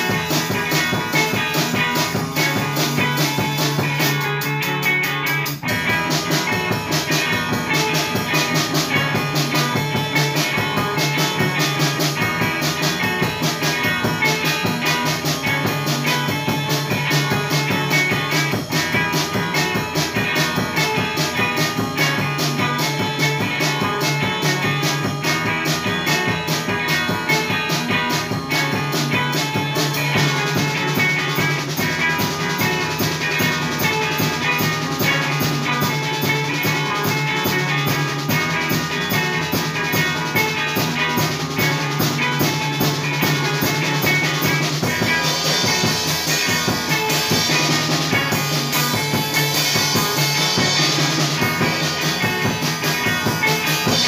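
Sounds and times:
drum kit playing steady beat: 0.0 - 54.0
electric guitar riffs: 0.0 - 54.0.

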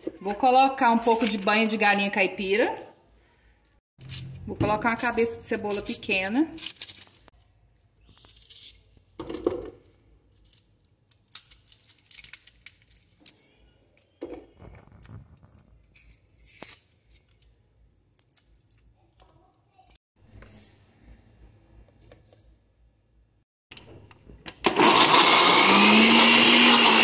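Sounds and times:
knife scraping onion skin: 5.6 - 7.4, 8.1 - 8.9, 15.9 - 17.5.

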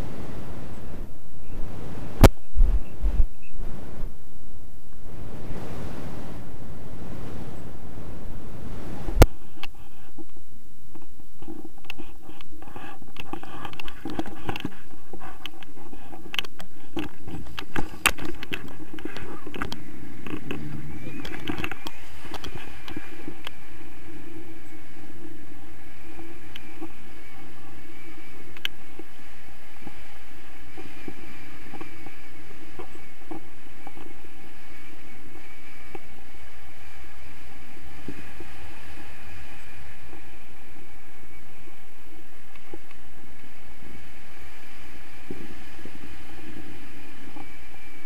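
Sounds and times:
wind rushing over microphone: 0.0 - 48.0.

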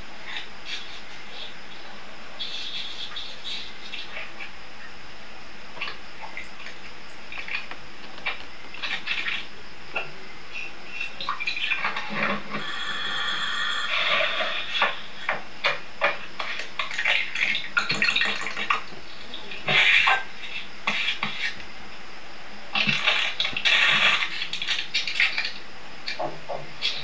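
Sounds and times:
spatula scraping a pan: 12.5 - 15.0
short high steady tone: 12.6 - 14.3.

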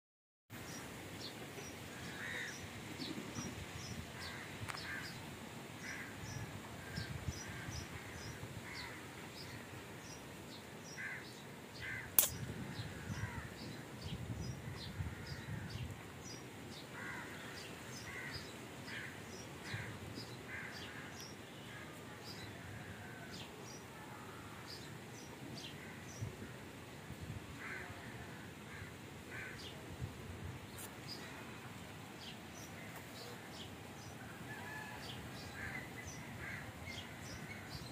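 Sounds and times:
birds calling and chirping: 10.9 - 16.4
sharp click: 12.2 - 12.4.

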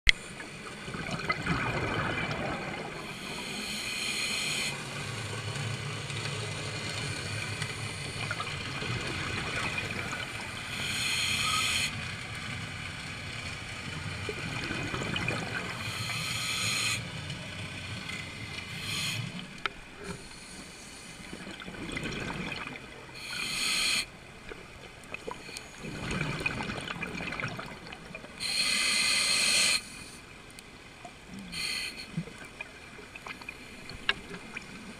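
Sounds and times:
watery wash: 0.1 - 34.9
scuba regulator breaths hissing: 3.1 - 4.8, 10.7 - 11.9, 15.8 - 17.0, 18.7 - 19.4, 23.2 - 24.1, 28.4 - 30.2, 31.5 - 32.2.

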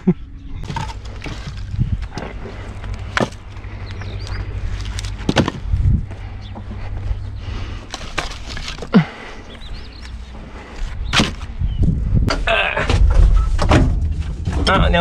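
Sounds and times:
firewood knocking and clattering: 0.6 - 6.7.

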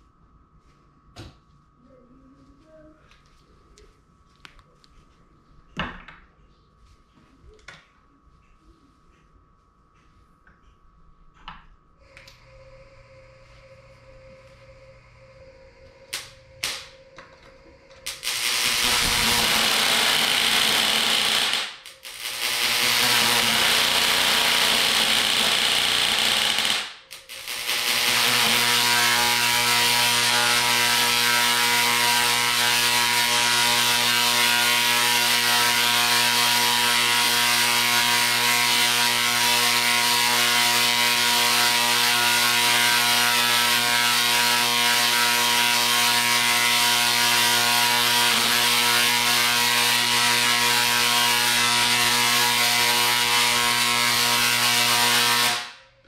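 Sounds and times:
tesla coil crackling and buzzing: 15.7 - 55.8
tesla coil pops: 16.1 - 16.9.

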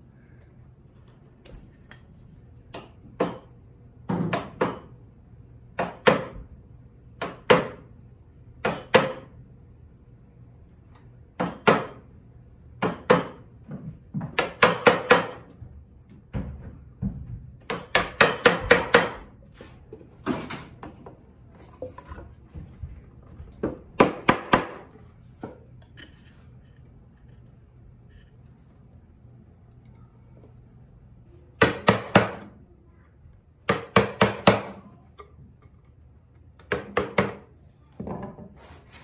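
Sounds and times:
small knocks and scraping: 0.0 - 3.1, 19.2 - 24.0, 24.8 - 31.0, 37.4 - 39.0.

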